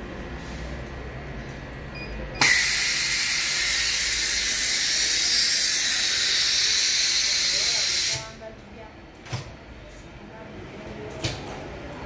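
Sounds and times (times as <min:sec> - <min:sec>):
low hum of workshop machinery: 0:00.0 - 0:12.0
compressed air hissing: 0:02.4 - 0:08.3.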